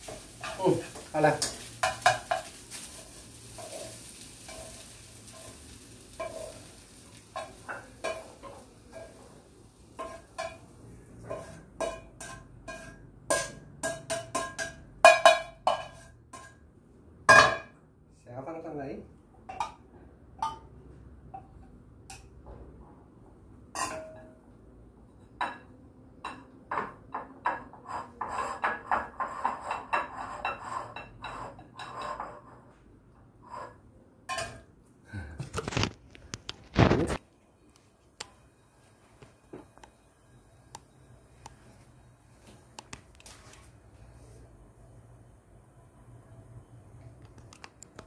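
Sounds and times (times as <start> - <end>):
metal spatula scraping a steel bowl: 0.4 - 6.8, 10.0 - 14.7, 27.5 - 32.8.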